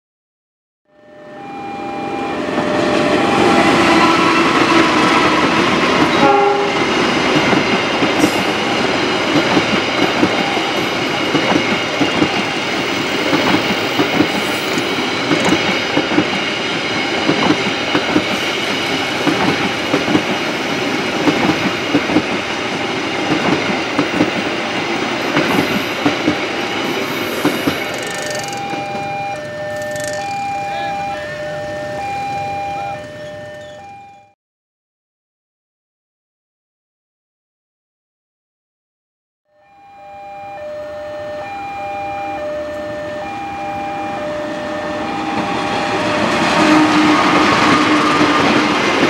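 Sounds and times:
train wheels clattering over rail joints: 6.9s - 20.5s, 25.3s - 29.0s.

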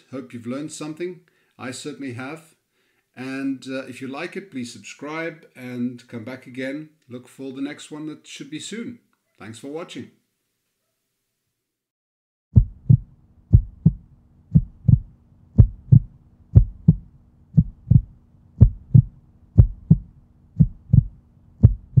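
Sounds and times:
faint steady hum: 12.6s - 22.0s
heartbeat thumps: 12.6s - 22.0s.

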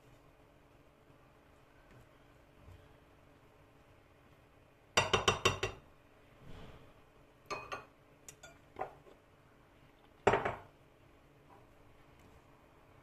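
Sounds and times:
spatula clinking in glass bowl: 7.5s - 8.6s.

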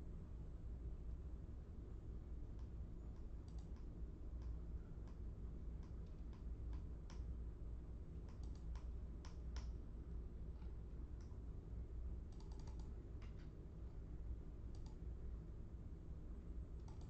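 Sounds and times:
keyboard keys clicking: 12.3s - 13.5s.

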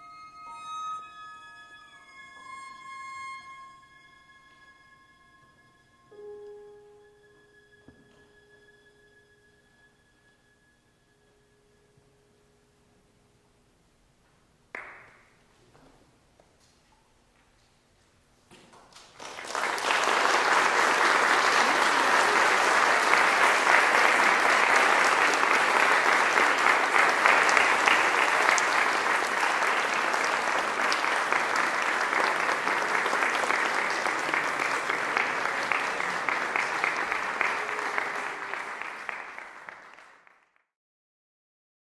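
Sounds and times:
audience applauding: 18.8s - 40.6s.

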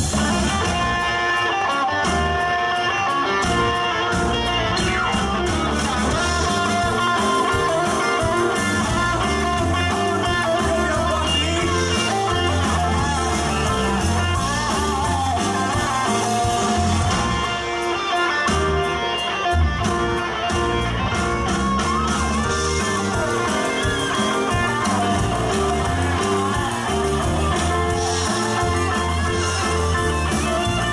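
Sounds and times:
bass guitar line: 0.0s - 30.9s
drum kit: 0.0s - 30.9s
electric guitar: 0.0s - 30.9s.

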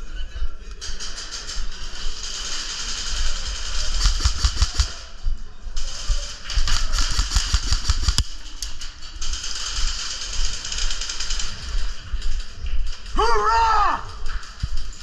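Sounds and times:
airsoft guns firing: 2.1s - 5.1s, 5.8s - 8.4s.

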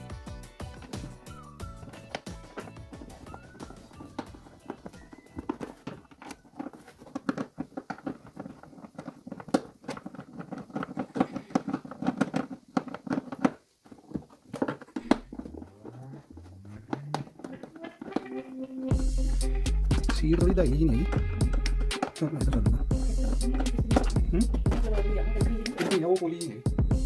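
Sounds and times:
plastic and metal clicks and rattles: 1.8s - 15.3s.

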